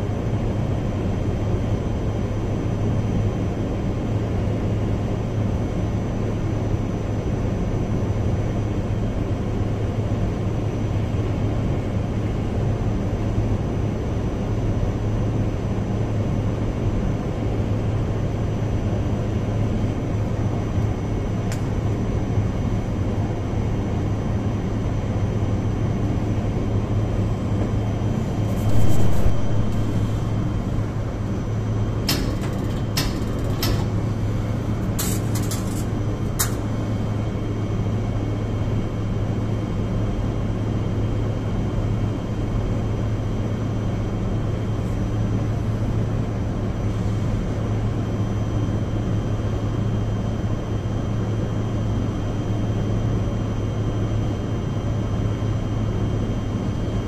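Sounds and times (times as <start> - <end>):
blower fan humming: 25.8 - 38.2.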